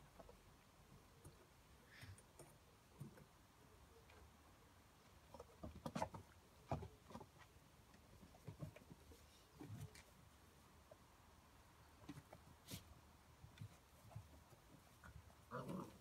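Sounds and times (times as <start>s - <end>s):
puppy paws tapping on wood: 5.2s - 10.2s.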